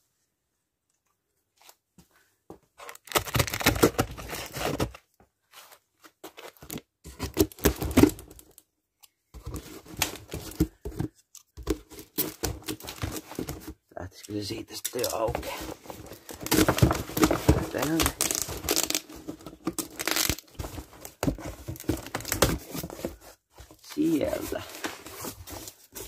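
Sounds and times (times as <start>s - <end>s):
packing tape ripping: 2.8s - 4.6s, 16.3s - 19.1s, 19.7s - 20.6s
cardboard flaps rustling: 14.9s - 26.0s.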